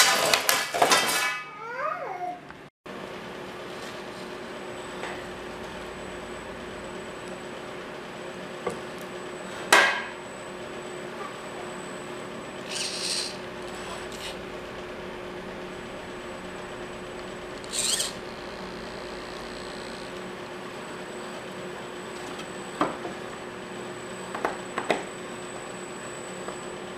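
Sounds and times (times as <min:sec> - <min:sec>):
steady low hum: 0:02.9 - 0:26.9
high electric motor whirring: 0:12.5 - 0:20.8.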